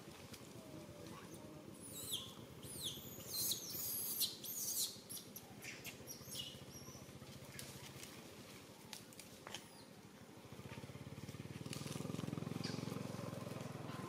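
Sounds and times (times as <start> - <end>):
shrill chirping calls: 1.8 - 7.1.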